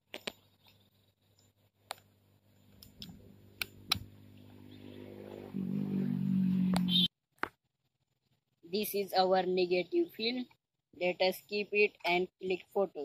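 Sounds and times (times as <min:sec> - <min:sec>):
low steady hum: 0:00.4 - 0:07.1.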